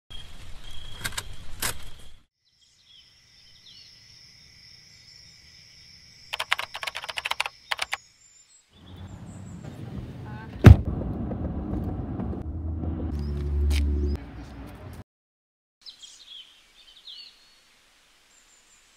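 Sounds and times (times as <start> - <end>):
chirp-like calls: 0.6 - 9.8
rapid sharp clicks: 6.3 - 8.0.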